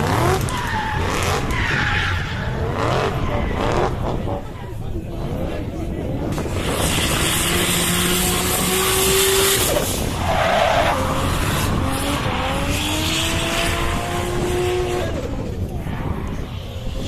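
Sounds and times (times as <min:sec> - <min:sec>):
car engine revving hard: 0:06.4 - 0:15.3.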